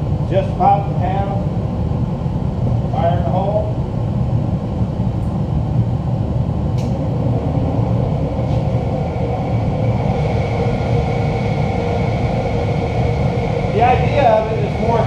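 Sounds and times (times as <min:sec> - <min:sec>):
forge roaring: 0:00.0 - 0:15.0
faint high whine: 0:06.8 - 0:15.0.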